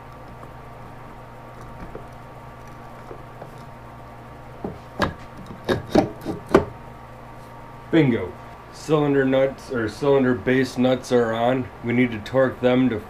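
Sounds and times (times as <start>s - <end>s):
low shop hum: 0.0s - 13.0s
sharp metal knocks and clunks: 4.7s - 6.8s.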